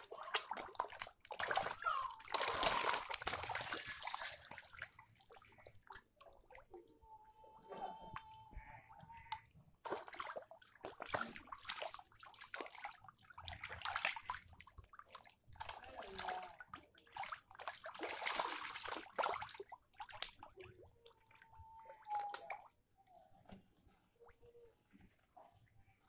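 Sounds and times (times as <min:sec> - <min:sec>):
fish splashing in water: 0:00.0 - 0:06.8, 0:09.3 - 0:20.7.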